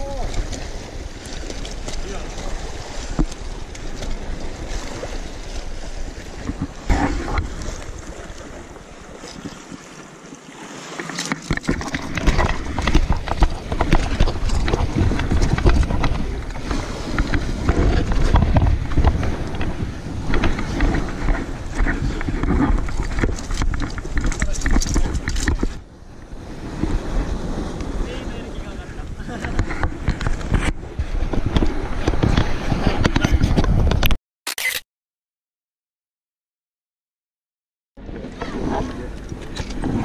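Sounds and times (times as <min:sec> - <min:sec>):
waves washing against rocks: 0:00.0 - 0:33.9
wind buffeting microphone: 0:11.9 - 0:34.1
camera handling noise: 0:33.9 - 0:34.8.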